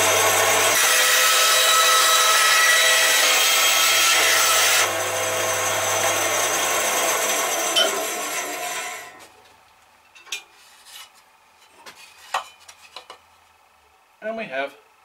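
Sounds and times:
band saw cutting wood: 0:00.0 - 0:09.2.

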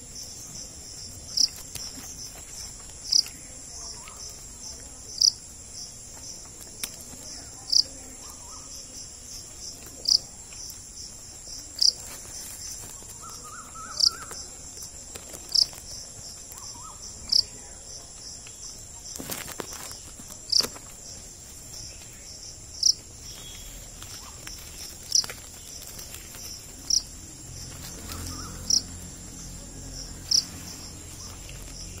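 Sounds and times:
cricket chirping: 0:00.0 - 0:32.0
high insect trill: 0:00.0 - 0:32.0.

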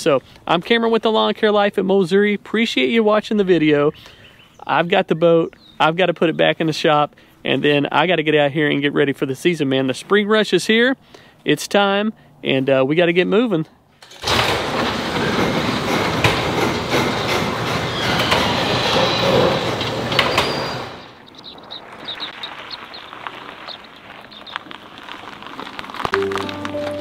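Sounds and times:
garage door rattling and rumbling: 0:14.0 - 0:21.2.

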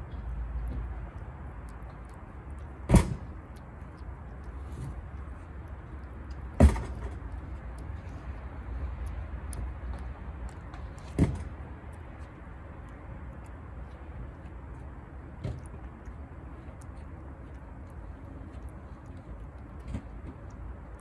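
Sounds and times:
cat licking and chewing food: 0:00.0 - 0:21.0
sharp thump: 0:02.9 - 0:03.3.

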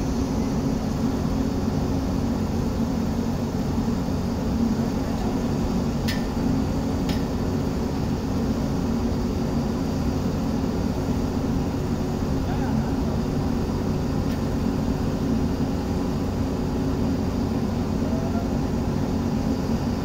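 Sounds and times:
diesel engine droning: 0:00.0 - 0:20.0.

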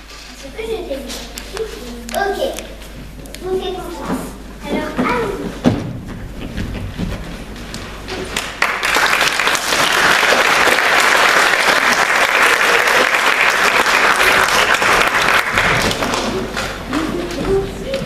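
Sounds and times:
audience applauding: 0:08.2 - 0:16.9.

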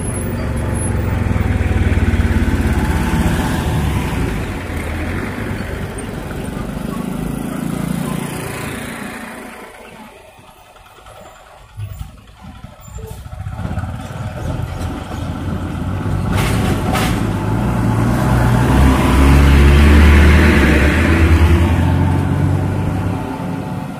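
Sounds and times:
car passing: 0:00.0 - 0:10.3, 0:15.0 - 0:23.9
motorcycle passing: 0:00.0 - 0:10.3, 0:17.3 - 0:23.9
bus diesel engine approaching: 0:00.0 - 0:23.9.

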